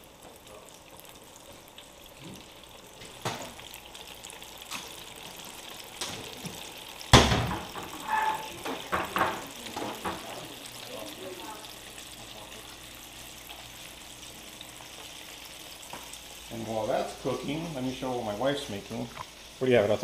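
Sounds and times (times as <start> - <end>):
deep-frying bubbling sizzle: 0.0 - 20.0
loud thump: 7.2 - 7.8.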